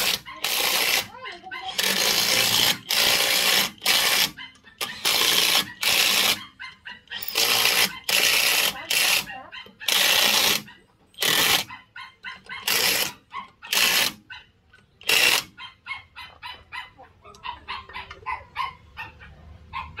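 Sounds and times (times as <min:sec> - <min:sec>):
impact wrench bursts: 0:00.0 - 0:01.1, 0:01.7 - 0:06.4, 0:07.2 - 0:11.7, 0:12.6 - 0:14.2, 0:15.0 - 0:15.6
chickens clucking: 0:00.0 - 0:02.0, 0:04.2 - 0:08.1, 0:08.7 - 0:20.0.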